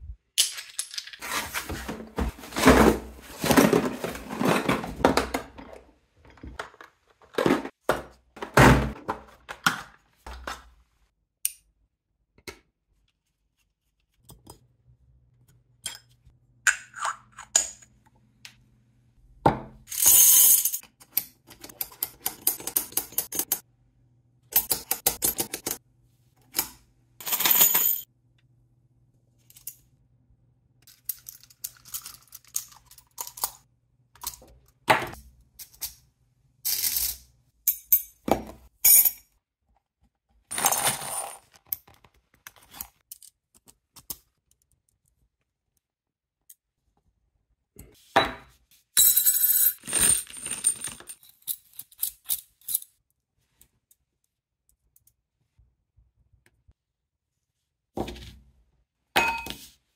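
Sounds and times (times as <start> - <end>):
plastic trays knocking and scraping: 1.2 - 10.6.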